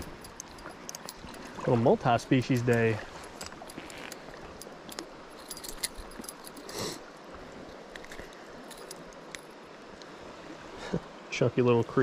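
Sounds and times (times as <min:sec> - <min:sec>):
creek rushing: 0:00.0 - 0:12.0
small clicks and metallic rattles: 0:02.4 - 0:06.7.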